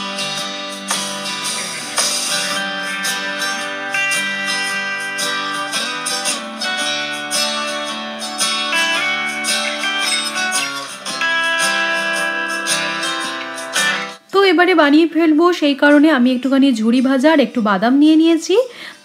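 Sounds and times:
plucked guitar music: 0:00.0 - 0:14.2
strummed guitar rhythm: 0:00.0 - 0:14.2.

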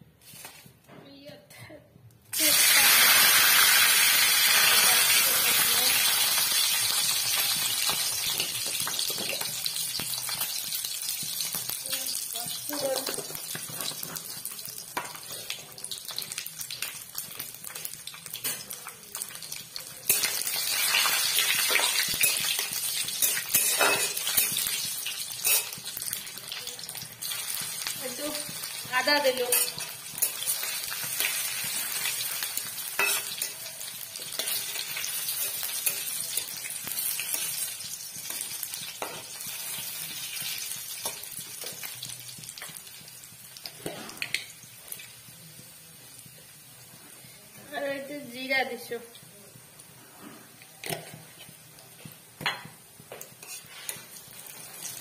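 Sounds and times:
oil sizzling in a pan: 0:02.3 - 0:55.0
spatula scraping a pan: 0:20.1 - 0:24.8, 0:25.4 - 0:26.0, 0:53.1 - 0:55.0.

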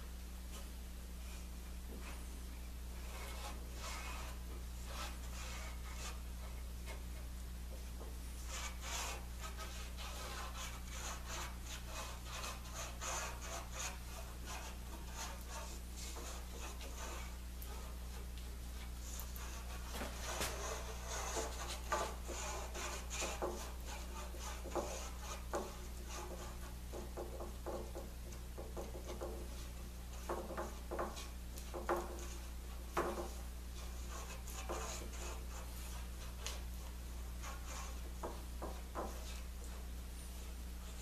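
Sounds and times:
steady low hum: 0:00.0 - 0:41.0
foam brush rubbing glue on wood: 0:02.9 - 0:07.2, 0:08.4 - 0:41.0
wooden strips tapping and knocking: 0:22.8 - 0:33.4, 0:38.2 - 0:39.4.

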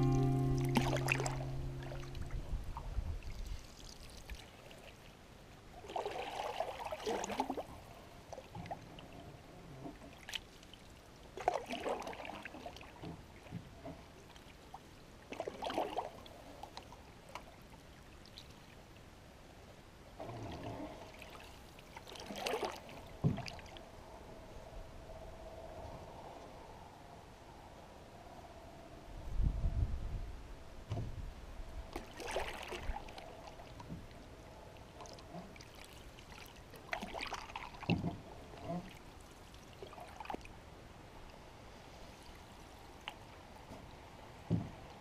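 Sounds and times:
music track: 0:00.0 - 0:02.4
canoe paddle splashing: 0:00.0 - 0:05.1, 0:05.8 - 0:09.0, 0:10.0 - 0:17.6, 0:20.2 - 0:23.8, 0:31.9 - 0:40.6.

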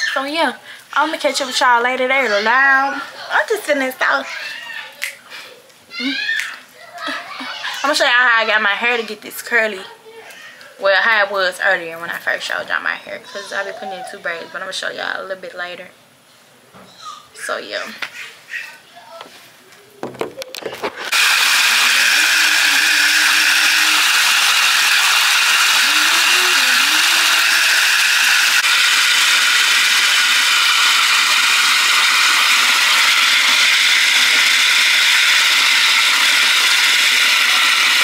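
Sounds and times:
bath tap running: 0:21.0 - 0:38.0.

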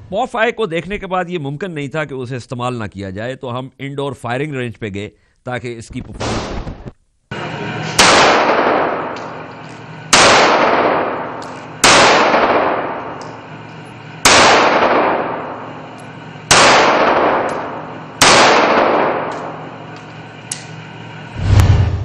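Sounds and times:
pistol shots echoing: 0:07.4 - 0:20.8.

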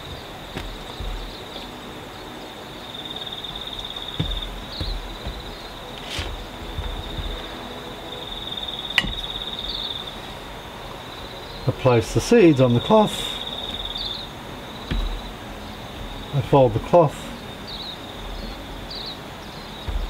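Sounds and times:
sharp knocks: 0:00.0 - 0:01.7, 0:03.8 - 0:07.7, 0:08.9 - 0:09.6, 0:13.6 - 0:16.3
high insect trill: 0:00.0 - 0:20.0.

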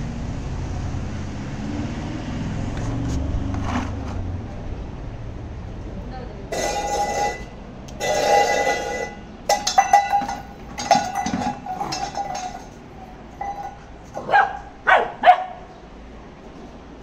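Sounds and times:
puppy barking: 0:14.2 - 0:15.7.

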